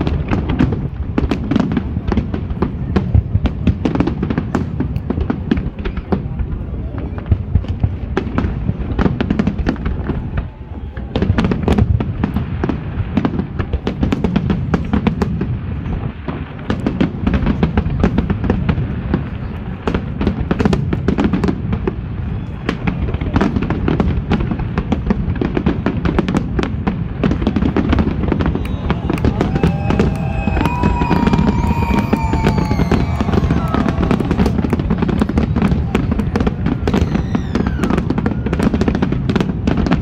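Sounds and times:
fireworks bangs and crackles: 0:00.0 - 0:40.0.

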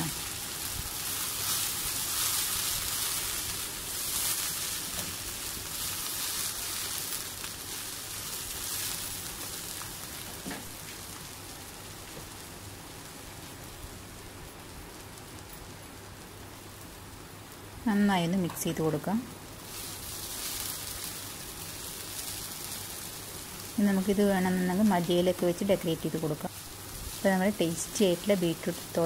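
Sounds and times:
beetroot sizzling in a hot pan: 0:00.0 - 0:29.0.

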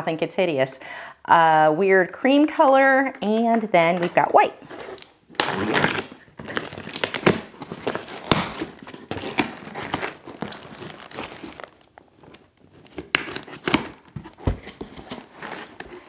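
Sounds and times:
packing material crinkling: 0:04.6 - 0:16.0
cardboard flaps scraping: 0:04.7 - 0:16.0.

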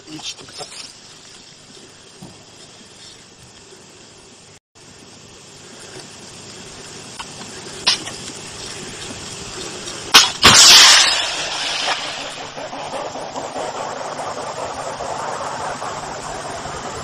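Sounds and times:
hiss: 0:00.0 - 0:17.0
sharp crack: 0:07.2 - 0:08.4, 0:09.8 - 0:16.6
missile launch blast and rush: 0:10.2 - 0:17.0.

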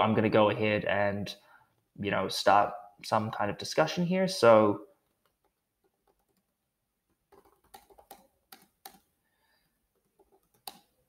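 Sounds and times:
typing on keyboard: 0:05.1 - 0:09.1, 0:09.9 - 0:11.0.

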